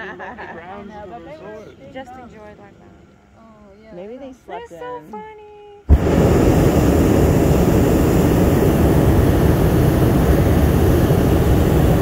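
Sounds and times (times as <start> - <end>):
propane burner blast: 5.9 - 12.0.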